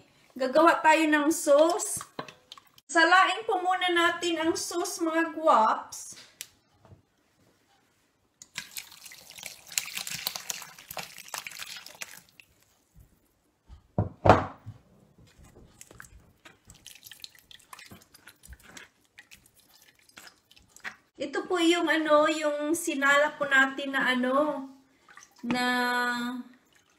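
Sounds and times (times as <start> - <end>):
sauce pouring and splashing: 8.4 - 13.0, 15.3 - 21.1, 25.0 - 25.5
small drips: 8.4 - 13.2, 15.3 - 21.1, 25.0 - 25.7, 26.4 - 26.9.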